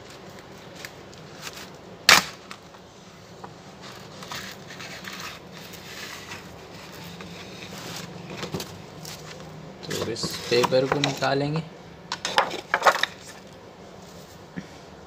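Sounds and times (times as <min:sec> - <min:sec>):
plastic sheets rustling: 0:00.0 - 0:11.4.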